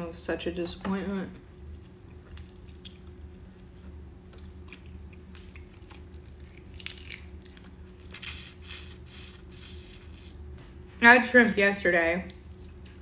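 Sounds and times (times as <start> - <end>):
steady low hum: 0.0 - 13.0
chewing: 1.5 - 10.4.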